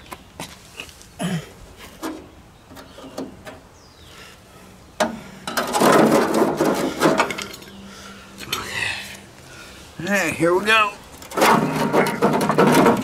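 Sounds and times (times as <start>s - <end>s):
sheet metal scraping and rattling: 5.0s - 7.7s, 11.2s - 13.0s.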